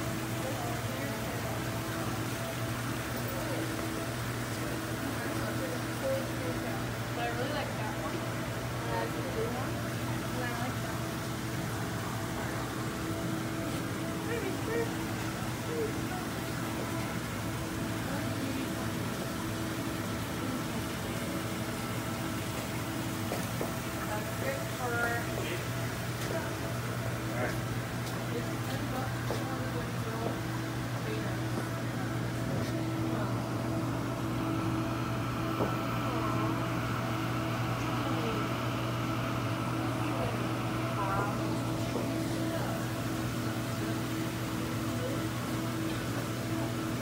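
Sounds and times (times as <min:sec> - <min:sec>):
aquarium equipment humming: 0:00.0 - 0:47.0.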